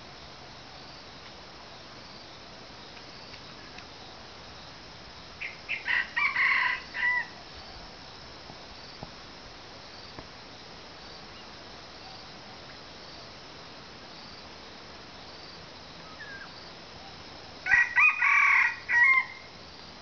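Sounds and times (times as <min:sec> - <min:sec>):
insects chirring: 0:00.2 - 0:20.0
rooster crowing: 0:05.7 - 0:07.4, 0:17.6 - 0:19.5.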